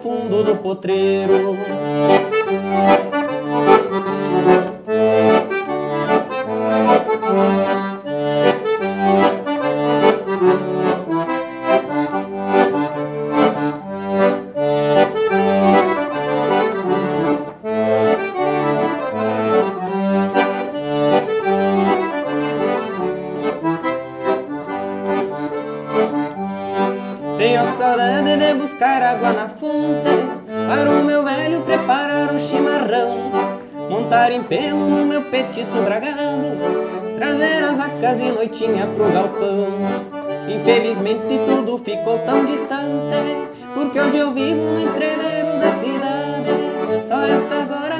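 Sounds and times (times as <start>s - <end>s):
young man singing: 0.0s - 2.3s, 27.3s - 47.9s
piano accordion playing: 0.0s - 47.9s.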